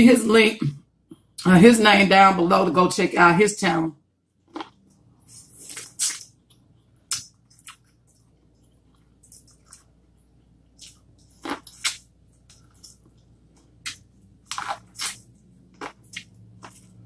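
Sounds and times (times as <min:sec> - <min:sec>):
person chewing corn on the cob: 0:04.4 - 0:17.0.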